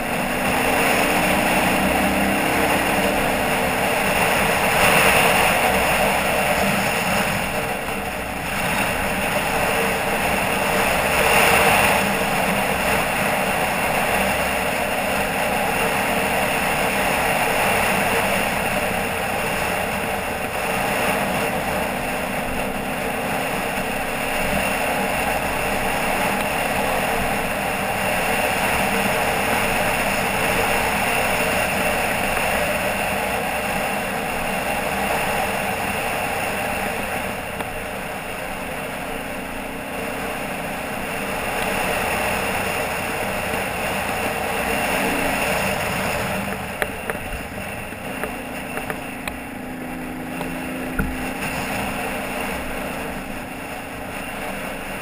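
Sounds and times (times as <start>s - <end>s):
quad bike engine running: 0.0s - 55.0s
wind and road noise: 0.0s - 55.0s.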